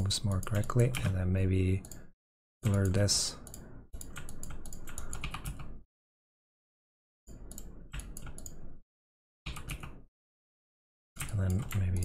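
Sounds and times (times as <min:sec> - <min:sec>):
computer keyboard keys clicking: 0:00.3 - 0:01.2, 0:02.6 - 0:05.8, 0:07.5 - 0:08.6, 0:09.5 - 0:10.0, 0:11.2 - 0:12.0.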